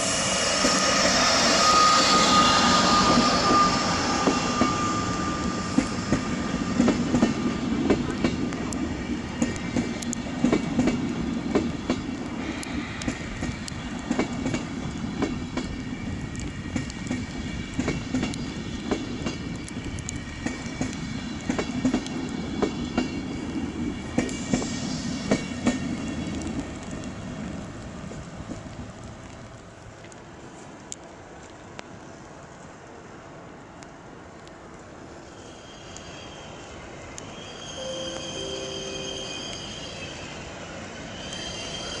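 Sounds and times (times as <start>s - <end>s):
train rumbling past: 0.0s - 31.4s, 34.7s - 42.0s
wheel squeals: 0.5s - 6.2s, 35.3s - 40.5s, 41.1s - 42.0s.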